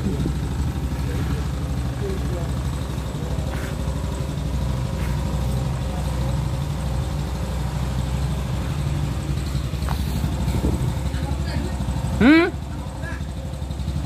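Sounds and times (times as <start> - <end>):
truck engine idling: 0.0 - 14.0.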